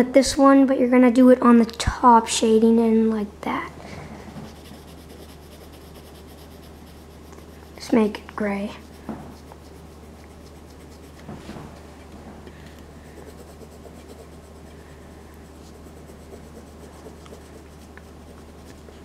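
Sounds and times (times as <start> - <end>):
steady low hum: 0.0 - 19.0
pencil scratching on paper: 4.3 - 11.3, 13.0 - 14.7, 15.5 - 19.0.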